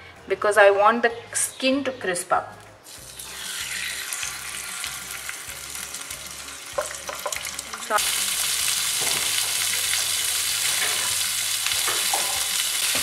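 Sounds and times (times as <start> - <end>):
fish sizzling in a skillet: 2.9 - 13.0.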